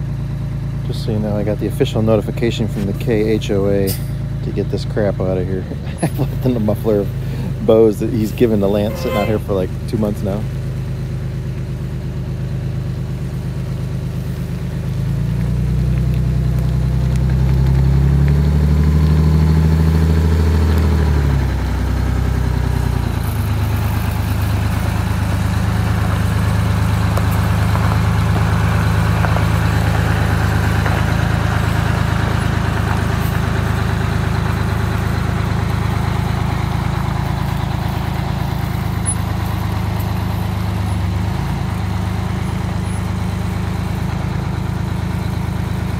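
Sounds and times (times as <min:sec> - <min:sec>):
bus engine revving: 0:14.9 - 0:45.9.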